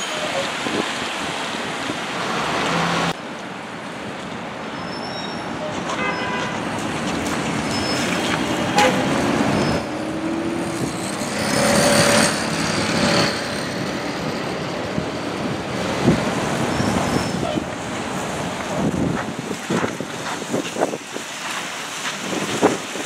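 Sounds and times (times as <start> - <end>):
traffic noise: 0.0 - 23.0
bus engine pulling away: 6.9 - 19.1.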